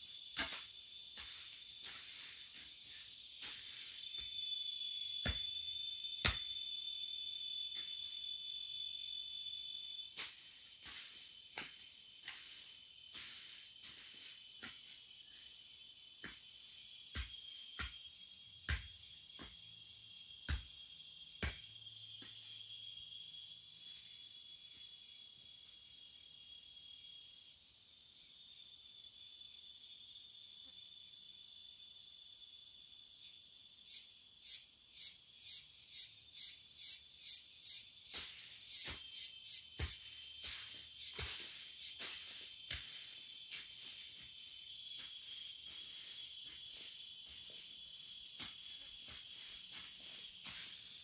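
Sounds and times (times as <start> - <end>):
high-pitched insect drone: 0.0 - 51.0
hoe chopping dry soil: 0.3 - 4.4, 38.1 - 47.6.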